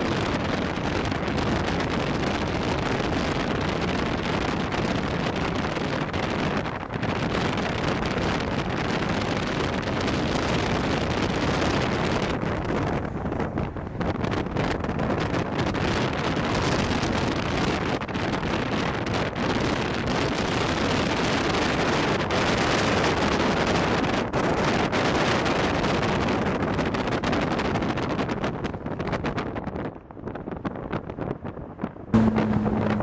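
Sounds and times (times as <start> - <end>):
low vehicle rumble: 0.0 - 16.6, 31.6 - 33.0
wind rushing on microphone: 0.0 - 33.0.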